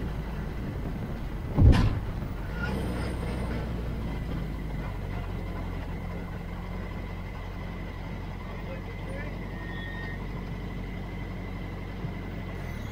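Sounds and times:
race car engine at low revs: 0.0s - 12.9s
sudden loud thump: 1.5s - 2.2s.

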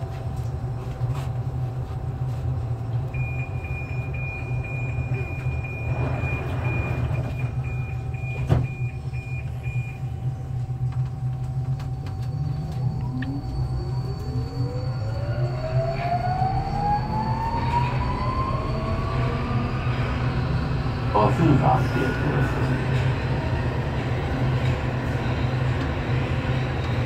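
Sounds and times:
train running rumble: 0.0s - 27.0s
traction motors whining: 2.8s - 27.0s
short beeps: 3.2s - 10.0s.

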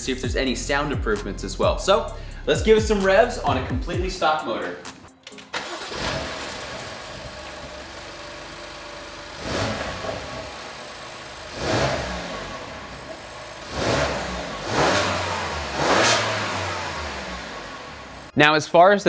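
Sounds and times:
car engine idling and revving: 5.6s - 18.4s.

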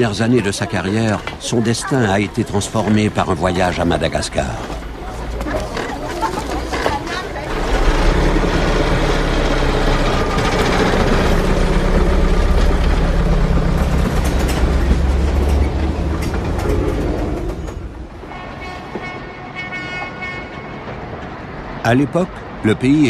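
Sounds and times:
heavy vehicle engine droning: 4.8s - 18.2s.

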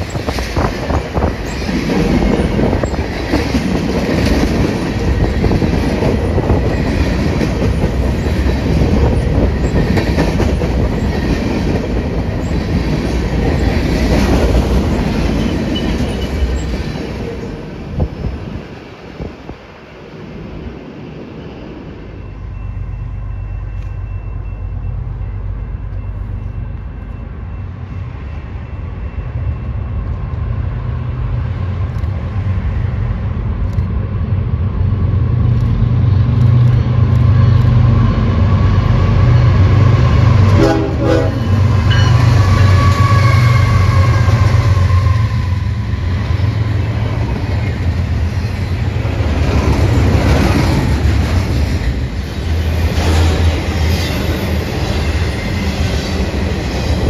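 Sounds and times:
diesel locomotive rumble: 0.0s - 57.0s
train cars rolling past: 0.0s - 57.0s
train air horn: 39.8s - 45.9s.

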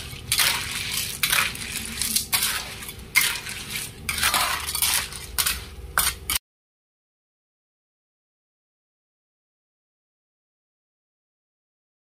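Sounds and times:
snail shells scraping in a wok: 0.0s - 6.4s.

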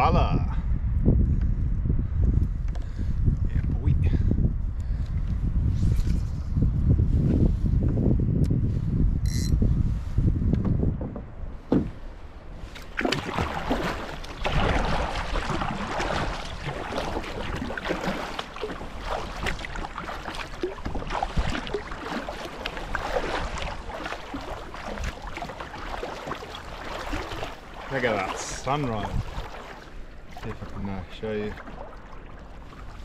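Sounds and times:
paddle splashing in water: 11.6s - 33.0s.

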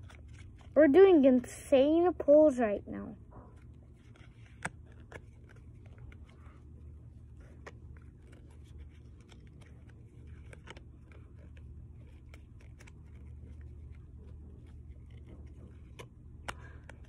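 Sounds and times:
cards flicking: 3.5s - 17.0s.

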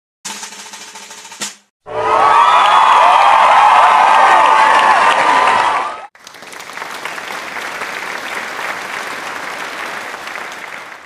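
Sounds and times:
crowd cheering and shouting: 1.9s - 6.1s
applause: 2.1s - 11.0s.

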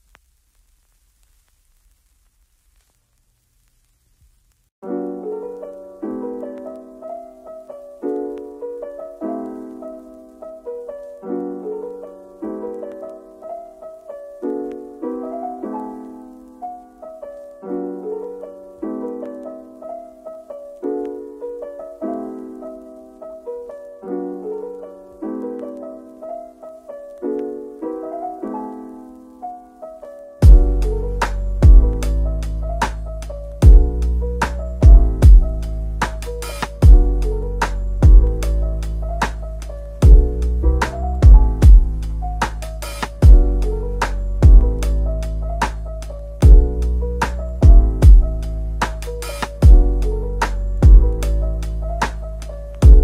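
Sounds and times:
faint room noise: 0.0s - 53.0s
gentle piano music: 4.8s - 53.0s.

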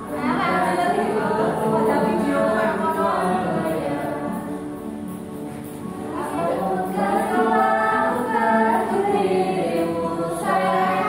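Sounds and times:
group singing held notes: 0.0s - 11.0s.

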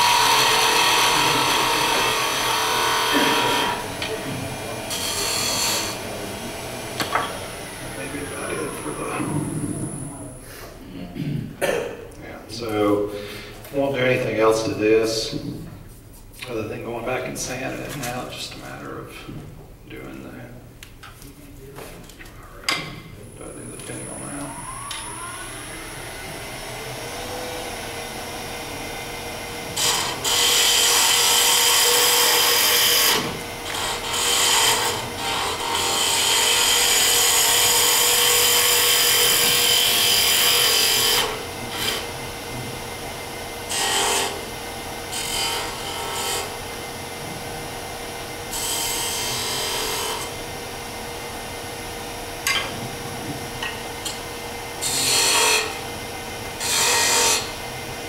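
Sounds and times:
turning tool cutting wood hiss: 0.0s - 4.2s, 23.9s - 26.8s
wood lathe humming: 0.0s - 10.4s, 22.7s - 58.0s.

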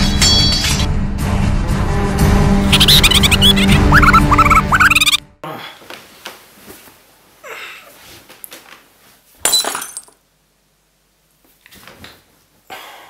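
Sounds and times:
bed covers rustling: 5.8s - 9.3s.

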